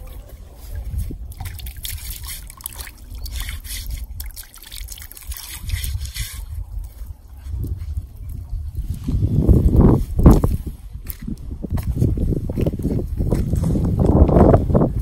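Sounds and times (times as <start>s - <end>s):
water trickling and dripping: 0.8s - 9.2s.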